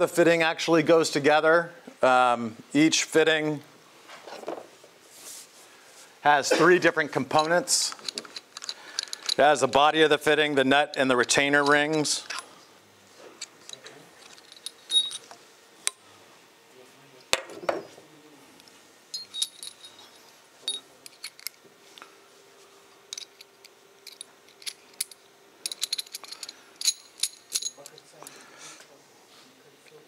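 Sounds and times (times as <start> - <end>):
small metal parts clinking: 7.4 - 9.4, 13.6 - 15.3, 19.1 - 21.6, 23.1 - 28.2.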